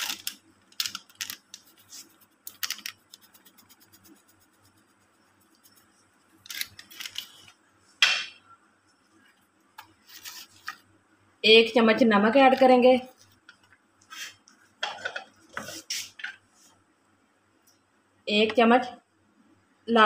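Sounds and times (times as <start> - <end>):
spice mix rustling and scraping: 0.0 - 7.5, 10.0 - 10.8.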